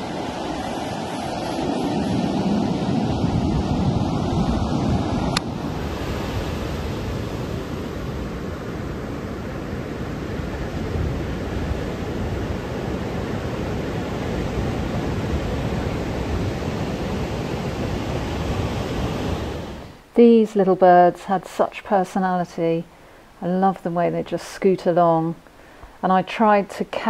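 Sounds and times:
surf breaking on a beach: 0:00.0 - 0:20.0.

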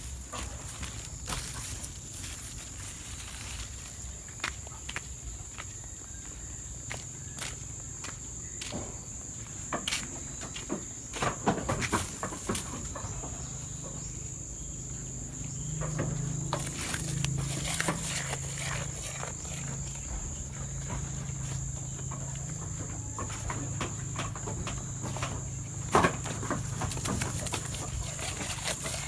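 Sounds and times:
high insect drone: 0:00.0 - 0:29.0
goat chewing leaves: 0:16.0 - 0:22.4, 0:24.0 - 0:29.0.

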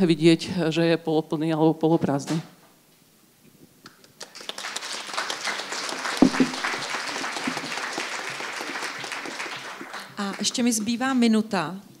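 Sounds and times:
audience applauding: 0:04.1 - 0:10.9
loud knock: 0:06.2 - 0:06.6.

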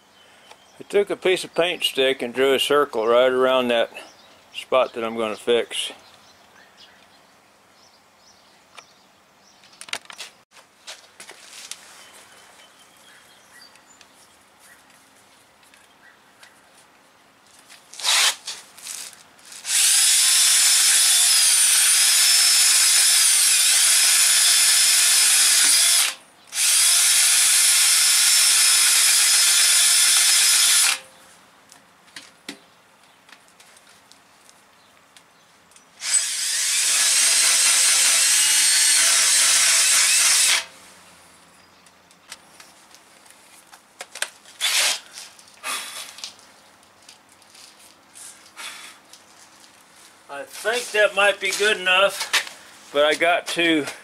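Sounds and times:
drill grinding rubber: 0:18.0 - 0:31.0, 0:36.0 - 0:40.7, 0:44.6 - 0:45.1.

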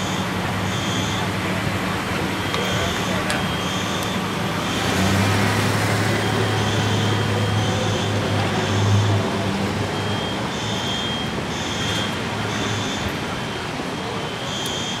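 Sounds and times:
short high-pitched beeps: 0:00.0 - 0:01.3, 0:02.4 - 0:04.9, 0:10.0 - 0:13.1, 0:14.0 - 0:15.0
vehicle engine humming: 0:00.0 - 0:15.0.

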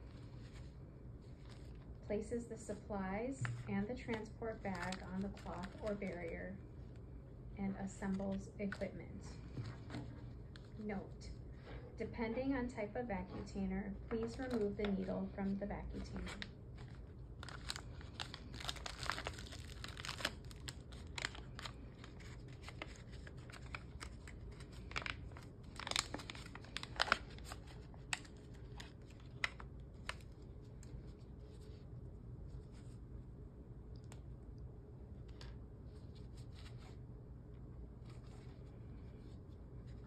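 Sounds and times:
wrappers crinkling and tearing: 0:03.4 - 0:06.4, 0:14.1 - 0:15.1, 0:15.9 - 0:31.8.

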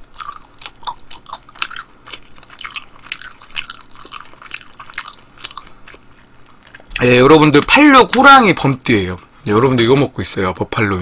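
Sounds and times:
person chewing with crunching: 0:00.0 - 0:07.1.

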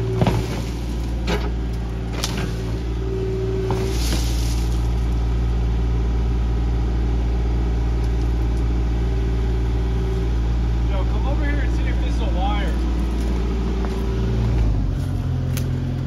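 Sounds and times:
hydraulic whine: 0:00.0 - 0:14.9
diesel engine running: 0:00.0 - 0:16.0
excavator bucket knocks: 0:00.1 - 0:01.6.

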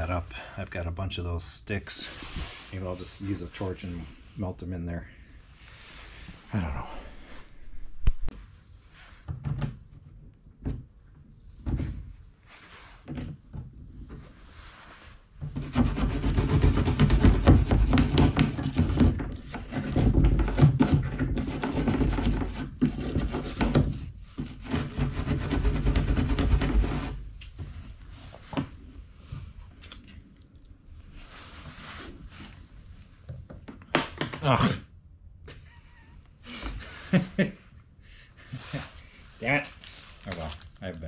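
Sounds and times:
rasping grinding on plastic tank: 0:15.5 - 0:27.2
knocks and handling noises: 0:31.6 - 0:34.5.

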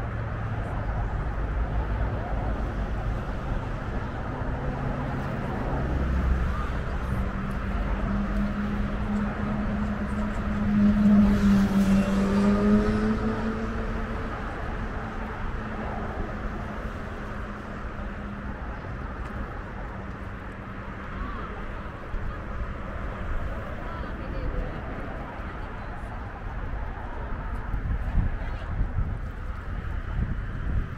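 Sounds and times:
vehicle engine passing by: 0:04.8 - 0:18.7.

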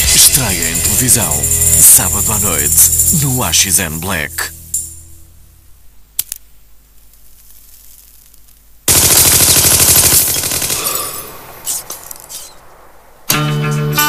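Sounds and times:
rapid automatic gunfire: 0:08.9 - 0:12.7.

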